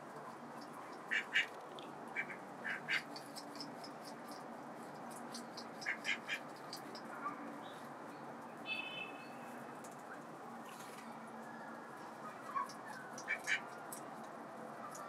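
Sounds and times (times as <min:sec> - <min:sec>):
ducks quacking: 0:01.1 - 0:01.5, 0:02.1 - 0:03.2, 0:05.8 - 0:06.4, 0:12.6 - 0:13.7.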